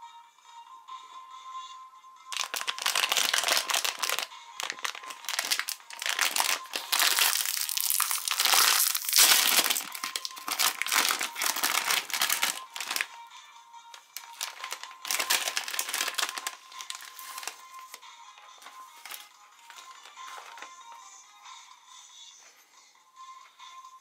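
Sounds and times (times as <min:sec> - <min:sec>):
snack wrapper crinkling: 0:02.3 - 0:13.2, 0:14.0 - 0:18.0, 0:18.9 - 0:20.7.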